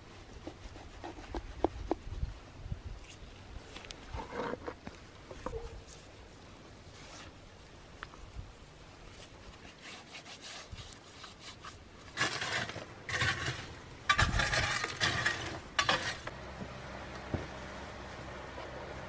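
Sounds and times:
stick stirring hot coals: 9.2 - 16.3.

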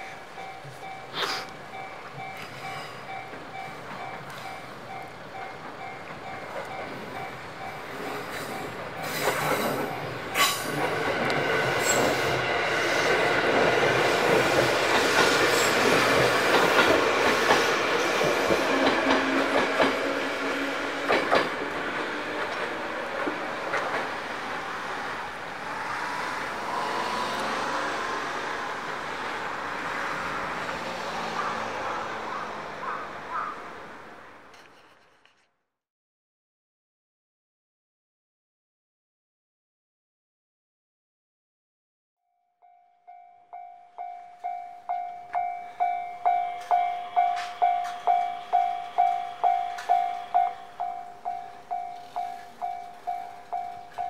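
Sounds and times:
level crossing warning bell: 0.0 - 10.4, 42.3 - 54.0
train wheels rumbling: 0.0 - 33.5, 44.0 - 54.0.

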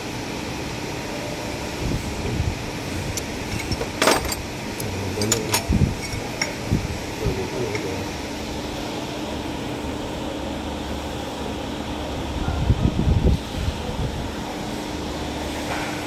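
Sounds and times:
steady machine hum: 0.0 - 16.0
spanner clinking on metal: 3.2 - 6.6.

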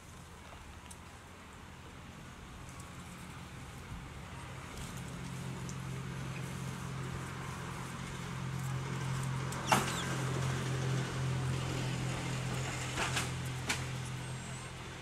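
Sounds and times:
low engine hum: 0.0 - 15.0.

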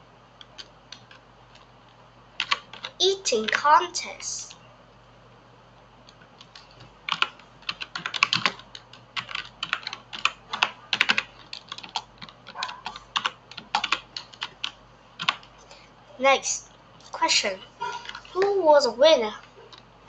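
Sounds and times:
computer keyboard key clicks: 6.1 - 15.5.

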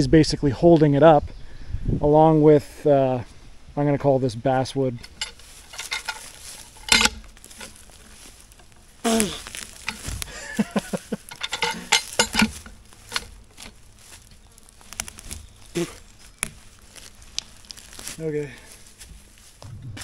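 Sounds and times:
dry brush rustling: 4.5 - 20.0
twigs snapping: 5.0 - 19.7.

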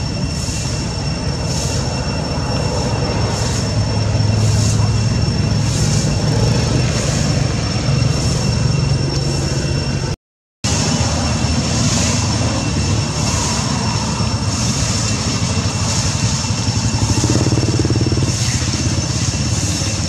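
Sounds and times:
low pulsing motor drone: 13.9 - 20.0.

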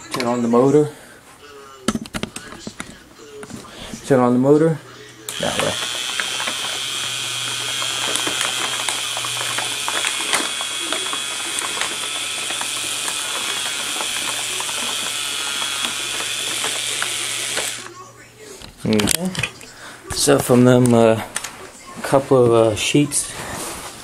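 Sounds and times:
motor-driven shredder running: 5.3 - 18.0.

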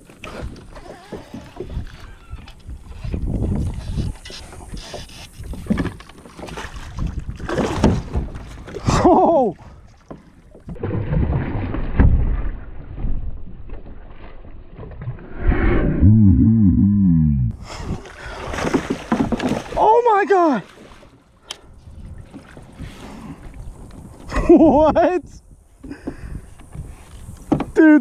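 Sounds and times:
wind rumbling on microphone: 0.0 - 10.0, 10.7 - 19.8, 21.6 - 27.8
short falling pitched sound: 15.3 - 17.5.

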